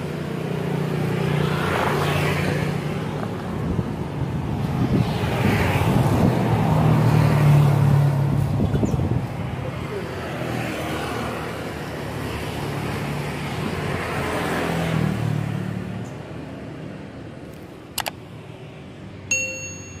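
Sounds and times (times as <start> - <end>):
sharp clicks: 17.9 - 18.2
short bright ding: 19.3 - 20.0.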